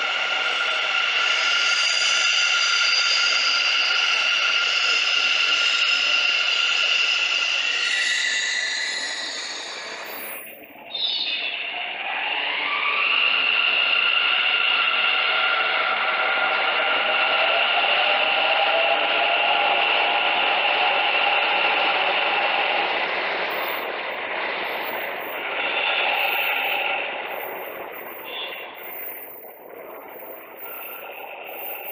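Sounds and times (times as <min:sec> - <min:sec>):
broad rushing noise: 0:23.5 - 0:31.9
electric train motor whine: 0:23.5 - 0:31.9.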